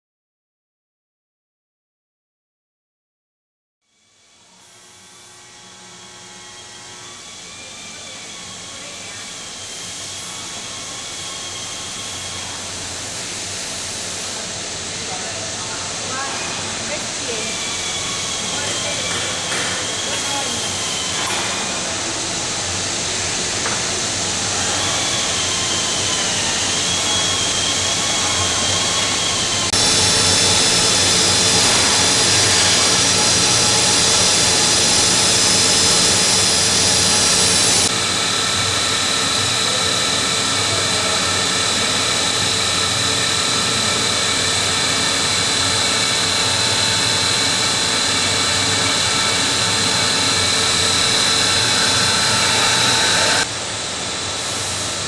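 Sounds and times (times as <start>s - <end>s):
braiding machine running: 4.4s - 55.0s
production line machinery whirring: 4.4s - 55.0s.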